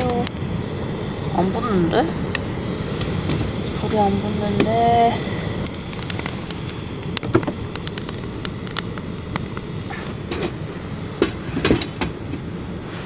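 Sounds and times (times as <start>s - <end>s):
gas burner roaring hiss: 0.0s - 13.0s
wet wood crackling and popping: 5.6s - 10.4s.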